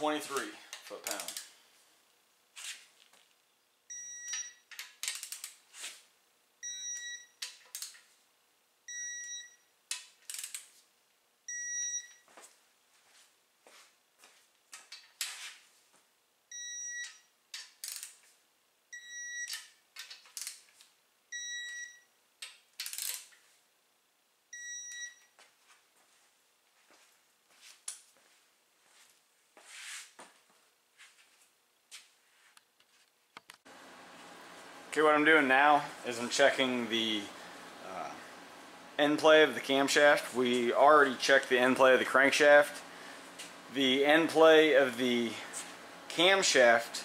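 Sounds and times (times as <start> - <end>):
ratchet clicks: 0.4 - 1.5, 4.7 - 5.6, 7.4 - 8.0, 9.9 - 10.7, 17.6 - 18.2, 19.5 - 20.7, 22.4 - 23.3
torque wrench beeps: 3.9 - 4.8, 6.6 - 7.4, 8.9 - 9.7, 11.5 - 12.2, 16.5 - 17.3, 19.0 - 19.7, 21.3 - 22.1, 24.6 - 25.3.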